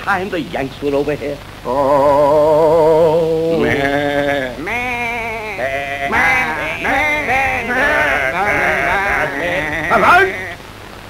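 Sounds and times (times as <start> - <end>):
person sobbing with quavering cries: 1.7 - 10.6.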